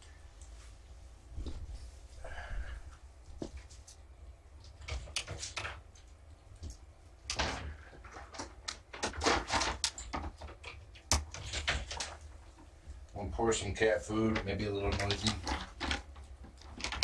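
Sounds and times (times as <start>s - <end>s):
hard objects clattering: 7.3s - 12.7s, 14.1s - 17.0s.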